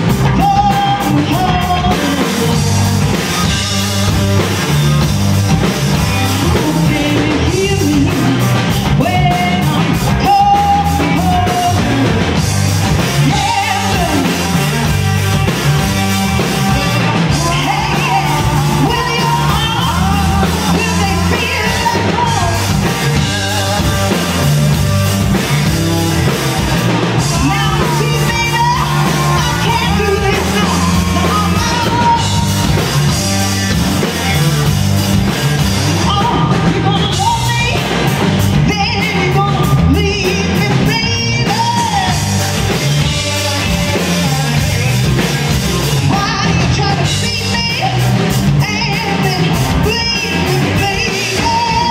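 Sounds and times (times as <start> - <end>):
bass guitar: 0.0 - 51.9
drum kit: 0.0 - 51.9
electric guitars: 0.0 - 51.9
woman singing into a microphone: 0.1 - 2.8, 6.3 - 12.2, 13.2 - 14.8, 16.6 - 24.1, 27.2 - 32.6, 36.0 - 45.0, 46.1 - 51.9.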